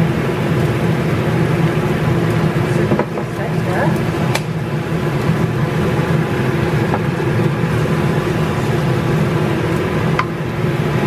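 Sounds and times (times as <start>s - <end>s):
extractor fan hum: 0.0s - 11.0s
sauce stirred in a wok: 4.0s - 11.0s.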